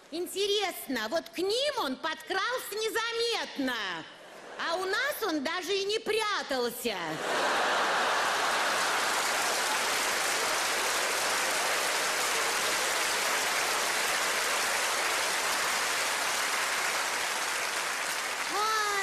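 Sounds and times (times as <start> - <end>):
audience applauding: 7.2 - 19.0.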